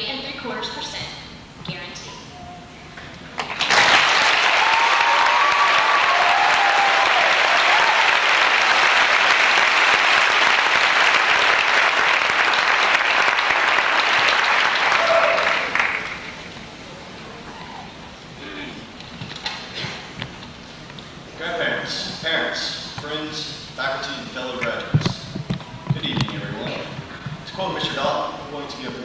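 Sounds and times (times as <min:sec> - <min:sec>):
large crowd applauding: 0:03.4 - 0:16.4.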